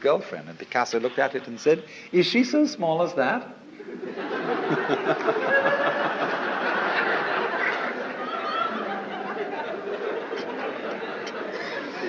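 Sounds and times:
audience laughing: 3.7s - 12.0s.

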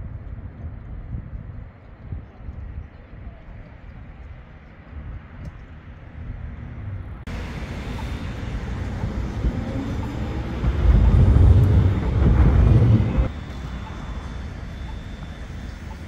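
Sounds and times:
city street traffic rumble: 3.6s - 16.0s.

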